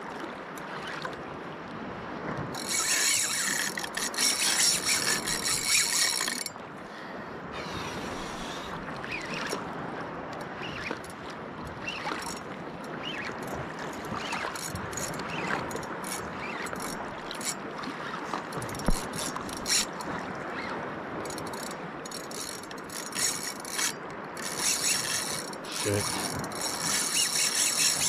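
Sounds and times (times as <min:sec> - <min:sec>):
wind and sea hiss: 0:00.0 - 0:28.0
fishing reel clicking: 0:02.5 - 0:06.6, 0:13.1 - 0:17.6, 0:18.5 - 0:28.0.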